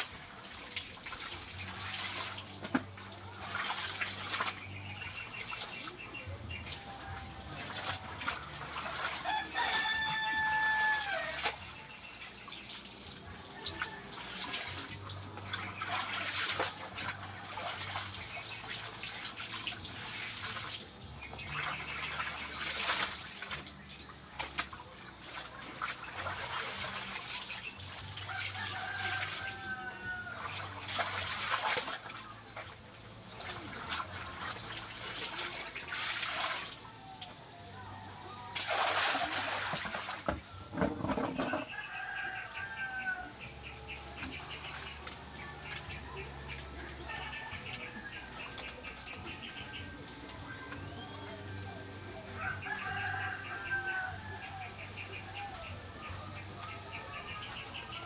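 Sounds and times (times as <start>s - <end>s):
water splashing and sloshing: 0.0s - 58.0s
rooster crowing: 9.2s - 11.4s, 28.3s - 30.5s, 41.6s - 43.4s, 46.9s - 48.3s, 52.4s - 54.8s.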